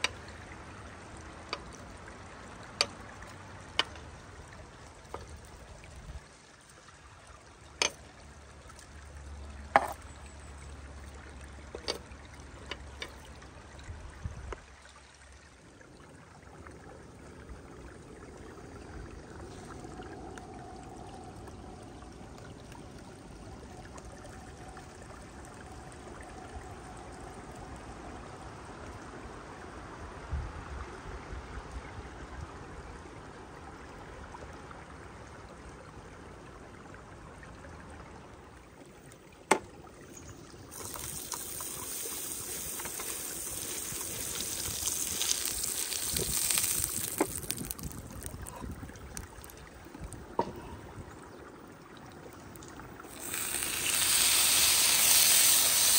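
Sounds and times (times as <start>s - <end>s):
steady watery hiss: 0.0s - 10.2s, 39.5s - 55.9s.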